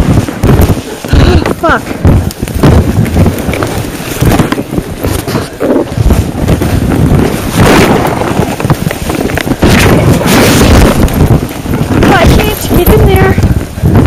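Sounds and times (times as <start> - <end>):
microphone handling noise: 0.0 - 14.0
wind buffeting microphone: 0.0 - 14.0.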